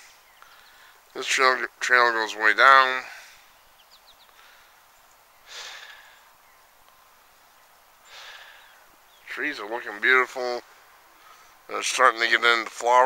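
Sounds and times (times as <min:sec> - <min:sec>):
faint breaths close to microphone: 0:00.0 - 0:01.1, 0:02.9 - 0:09.3, 0:10.6 - 0:11.7.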